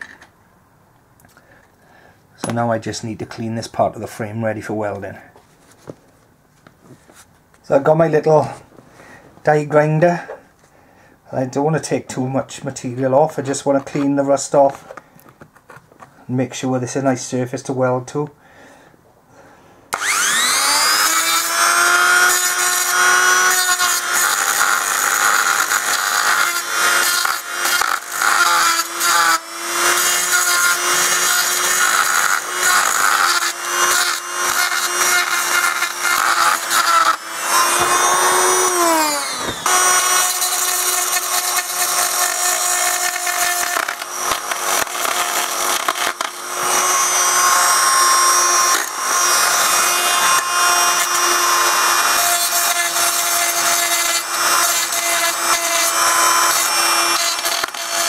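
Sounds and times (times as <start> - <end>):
die grinder whining: 19.9 - 58.0.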